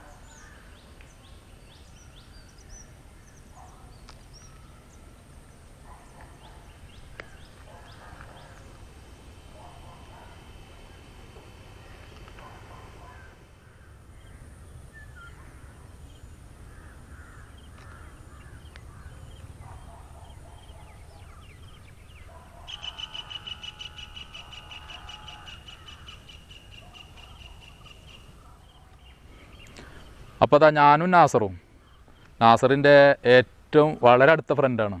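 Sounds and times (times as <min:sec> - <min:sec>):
birds calling: 0:00.0 - 0:35.0
lower bending calls: 0:04.3 - 0:30.6.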